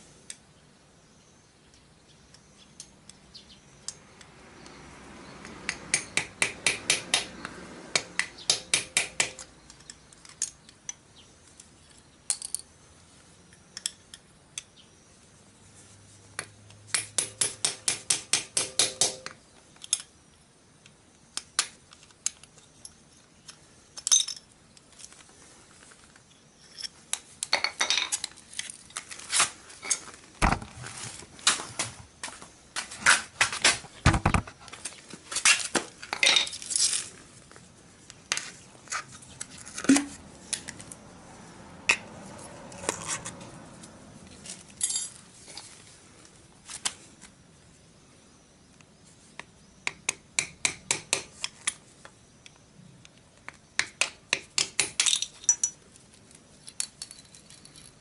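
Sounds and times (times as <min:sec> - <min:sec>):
small hammer tapping on metal: 0:05.6 - 0:07.3, 0:08.0 - 0:10.0, 0:16.9 - 0:19.4
metal clinks: 0:44.8 - 0:45.2, 0:55.0 - 0:55.8, 0:56.6 - 0:58.0.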